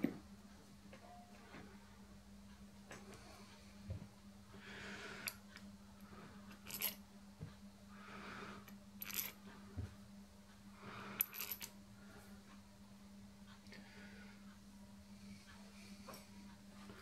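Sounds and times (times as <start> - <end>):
steady low hum: 0.0 - 17.0
metal screws clinking: 6.7 - 7.0, 9.0 - 9.4, 11.2 - 11.7.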